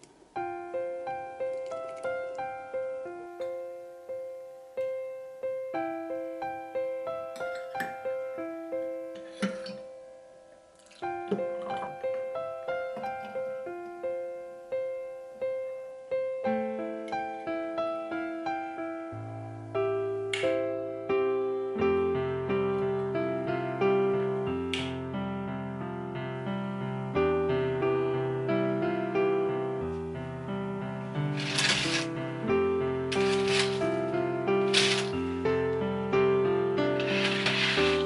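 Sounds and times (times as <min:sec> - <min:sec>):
gentle piano-like melody: 0:00.0 - 0:38.0.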